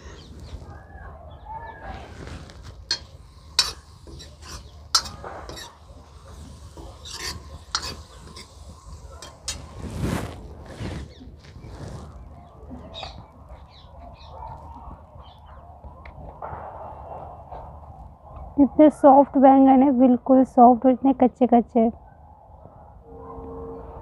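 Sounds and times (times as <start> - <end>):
metal ladle stirring in iron pan: 2.6 - 9.9.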